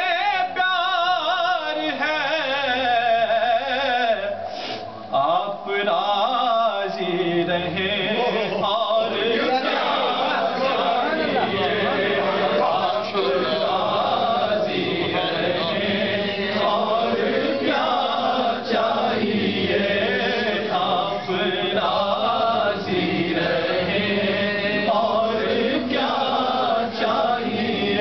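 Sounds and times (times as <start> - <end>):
man chanting: 0.0 - 4.5, 5.1 - 22.8.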